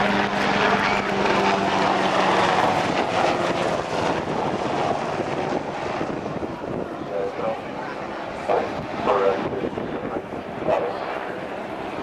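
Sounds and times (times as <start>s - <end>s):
helicopter flying past: 0.0s - 12.0s.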